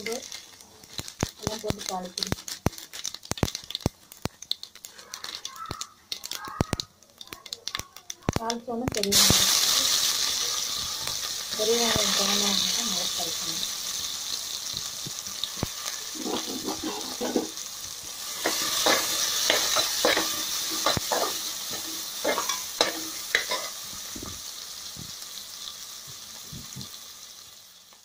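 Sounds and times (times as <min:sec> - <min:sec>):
onion sizzling in hot oil: 0:00.0 - 0:28.0
metal spatula scraping pan: 0:16.1 - 0:17.6, 0:18.4 - 0:23.8.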